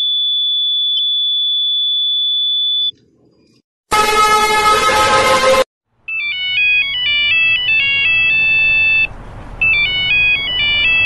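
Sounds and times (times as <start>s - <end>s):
chiming phone ringtone: 6.1s - 11.0s.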